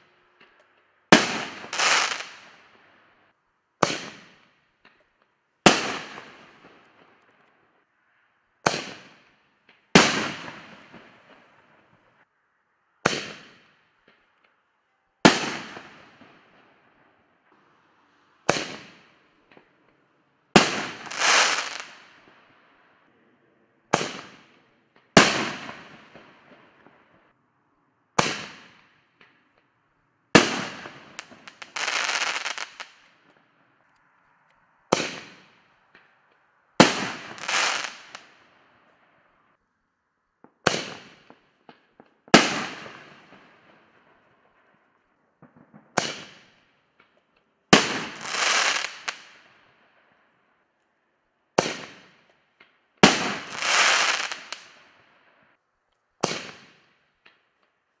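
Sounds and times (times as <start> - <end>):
firework bangs echoing: 1.1 - 2.5, 3.8 - 4.5, 5.6 - 6.8, 10.0 - 11.5, 13.0 - 13.7, 15.2 - 16.4, 18.5 - 19.7, 20.6 - 22.2, 23.9 - 24.5, 25.2 - 27.0, 28.2 - 28.9, 30.4 - 32.9, 34.9 - 36.0, 36.8 - 38.3, 40.6 - 43.8, 45.4 - 46.6, 47.8 - 49.4, 51.6 - 52.2, 53.0 - 54.8, 56.2 - 56.9.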